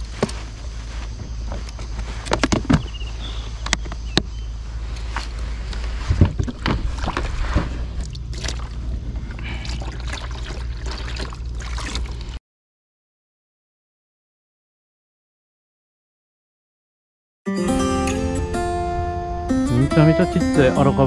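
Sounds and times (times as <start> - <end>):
water pouring from plastic jug: 9.4 - 12.4.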